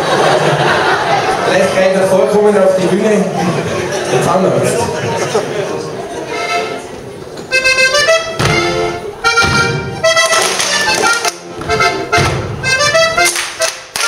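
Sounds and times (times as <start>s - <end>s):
accordion dance tune: 6.2s - 14.0s.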